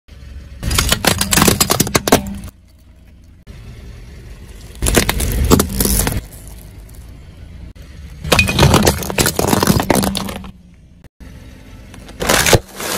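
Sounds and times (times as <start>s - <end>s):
crunching and cracking of balls: 0.6s - 3.4s, 4.4s - 7.2s, 8.0s - 10.7s, 11.9s - 12.9s
plastic crackling under car tyre: 4.4s - 7.1s.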